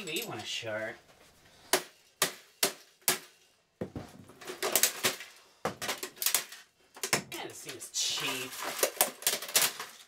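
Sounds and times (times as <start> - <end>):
plastic parts clicking and rattling: 4.3 - 10.0.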